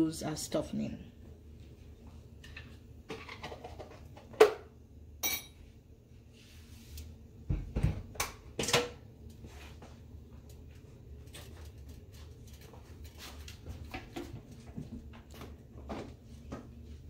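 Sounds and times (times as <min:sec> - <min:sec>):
kitchenware knocking and clinking: 0:03.1 - 0:05.6.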